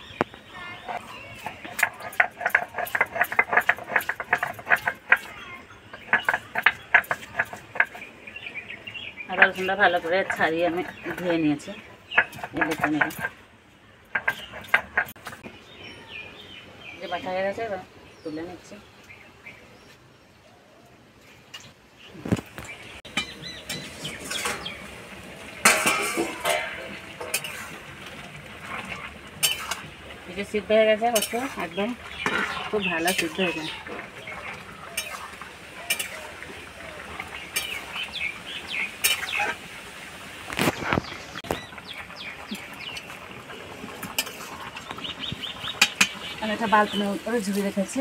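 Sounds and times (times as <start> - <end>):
stone roller crushing garlic: 0.8 - 8.1
metal cookware clinking and clattering: 0.9 - 8.0, 9.3 - 13.4, 14.1 - 15.4, 23.1 - 36.4, 37.2 - 38.0, 38.8 - 39.6, 42.5 - 48.0.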